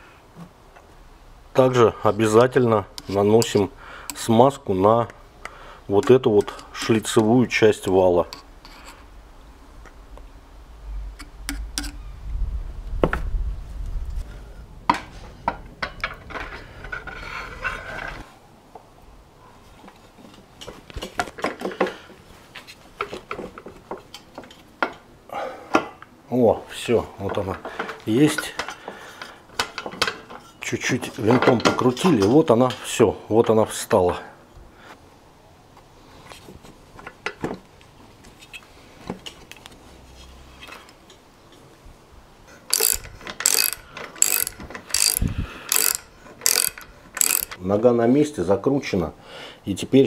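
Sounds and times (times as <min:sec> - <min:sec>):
metal clinking and knocking: 0:42.7 - 0:47.6
ratchet wrench ratcheting: 0:42.7 - 0:47.6.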